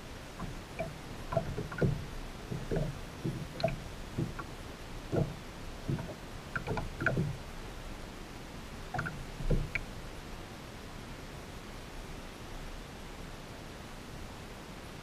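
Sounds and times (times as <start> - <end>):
water lapping against board: 0.3 - 7.8, 8.9 - 9.9
small clicks: 5.1 - 7.3.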